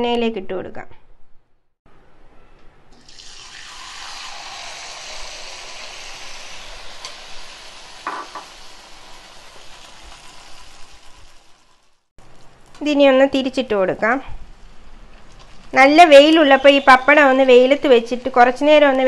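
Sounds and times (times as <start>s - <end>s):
food sizzling in hot oil: 3.0s - 12.5s.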